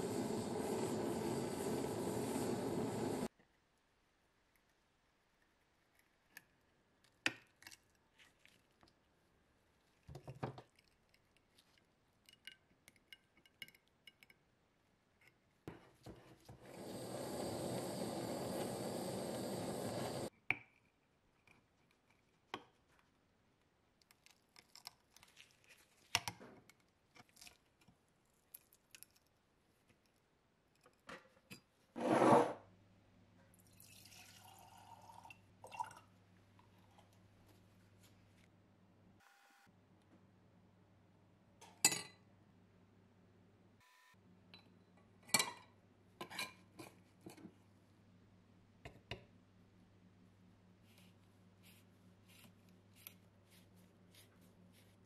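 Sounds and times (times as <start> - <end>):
steady hiss: 0.0 - 3.3, 16.7 - 20.3.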